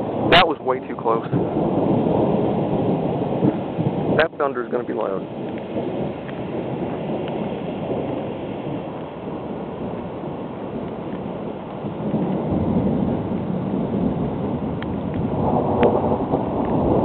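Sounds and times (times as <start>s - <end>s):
rain: 0.0s - 17.0s
rolling thunder: 0.0s - 17.0s.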